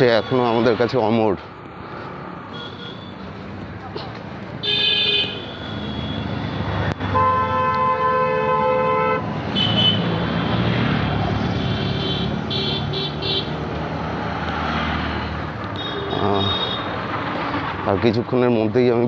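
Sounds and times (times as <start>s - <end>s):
motorcycles passing: 0.0s - 18.7s
vehicle horn blaring: 4.6s - 10.2s, 11.6s - 13.5s.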